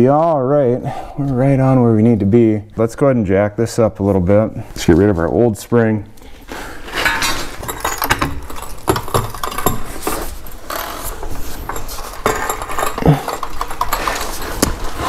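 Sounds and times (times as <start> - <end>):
metal tools clinking and scraping: 6.9 - 15.0.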